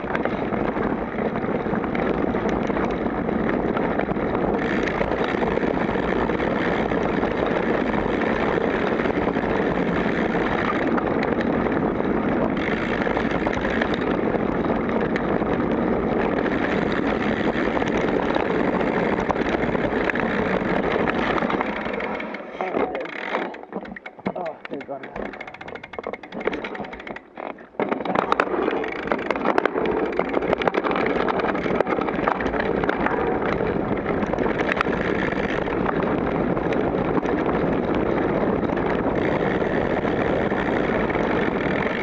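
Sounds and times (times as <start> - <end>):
bike tyre and frame rattle: 0.0 - 42.0
wind on microphone: 0.0 - 42.0.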